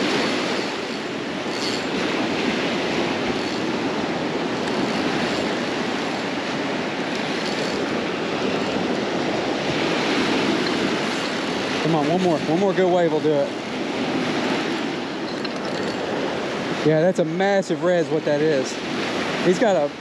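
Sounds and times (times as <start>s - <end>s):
surf breaking on sand: 0.0s - 15.2s.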